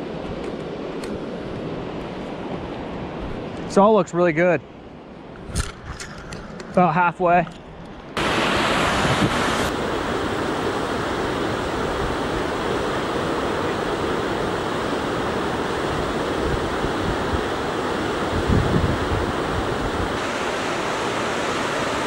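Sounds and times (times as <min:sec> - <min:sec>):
river rapids rushing: 0:08.2 - 0:22.0.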